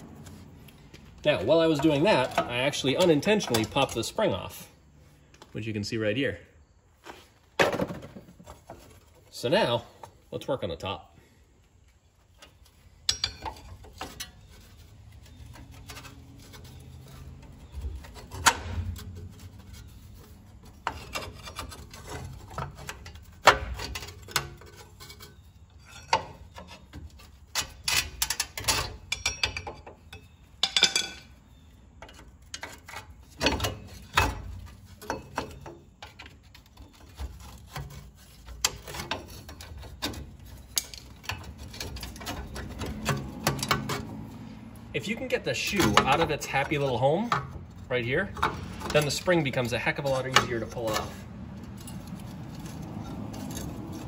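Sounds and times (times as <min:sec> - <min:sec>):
metal parts clicking and scraping: 0:00.1 - 0:04.6, 0:12.2 - 0:54.0
tool slipping with sharp knocks: 0:45.3 - 0:54.0.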